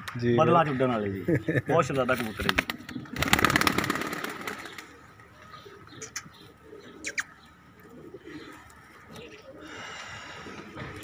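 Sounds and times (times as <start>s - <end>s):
pigeons cooing: 2.4s - 11.0s.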